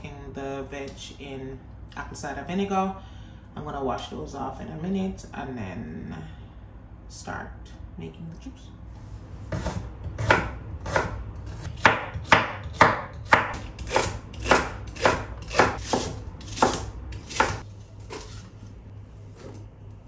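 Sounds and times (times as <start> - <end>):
knife chopping on wooden board: 9.5 - 18.4.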